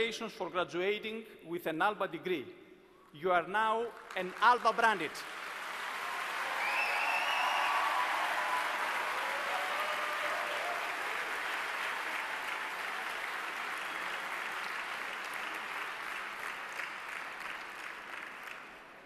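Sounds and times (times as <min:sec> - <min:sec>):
audience applauding: 0:04.0 - 0:19.0.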